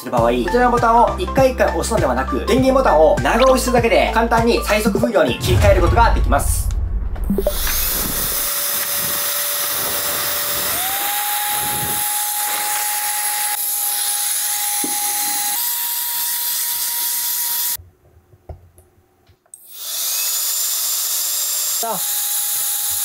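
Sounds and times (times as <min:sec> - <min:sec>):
electric air duster blowing: 0:07.7 - 0:13.6.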